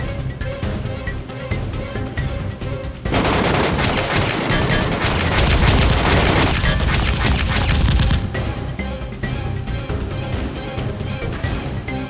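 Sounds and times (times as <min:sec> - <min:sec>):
background music: 0:00.0 - 0:12.0
rapid gunfire sound effect: 0:03.1 - 0:08.3.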